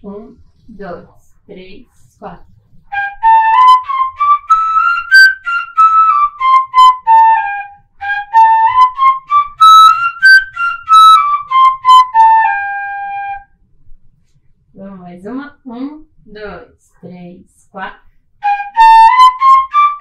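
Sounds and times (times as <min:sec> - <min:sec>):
wooden fife playing scales: 0:02.7 - 0:13.4.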